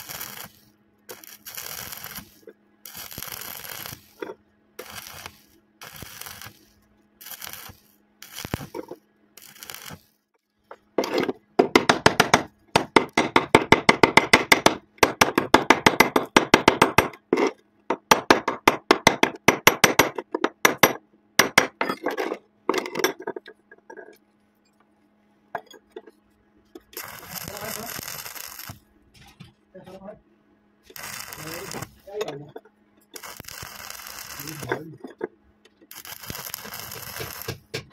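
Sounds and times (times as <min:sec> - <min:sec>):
electric arc welding: 0:00.0 - 0:10.2, 0:26.9 - 0:28.8, 0:30.9 - 0:32.2, 0:33.2 - 0:34.9, 0:35.9 - 0:37.9
metallic tapping and scraping: 0:25.6 - 0:27.8, 0:34.1 - 0:37.9.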